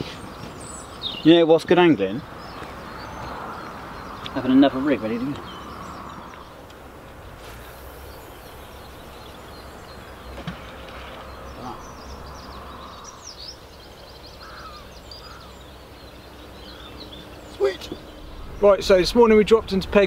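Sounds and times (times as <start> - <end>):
faint bird chirps: 7.2 - 18.8
steady low rumble: 17.9 - 20.0.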